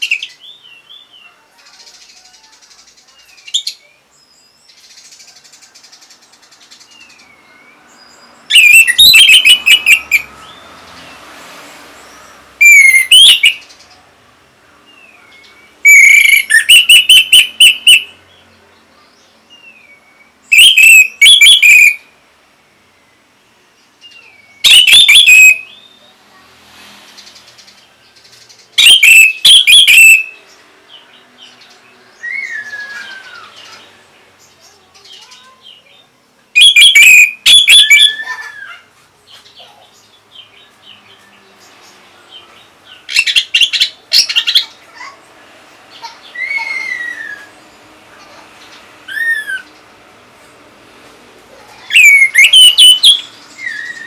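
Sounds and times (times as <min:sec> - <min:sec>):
thrush singing: 0:51.8 - 0:54.0.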